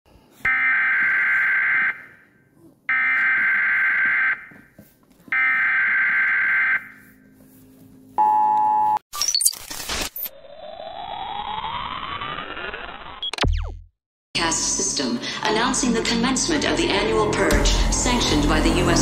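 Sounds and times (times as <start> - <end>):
crackling digital static: 9.2 - 13.6
rising electronic sweep: 10.3 - 13.8.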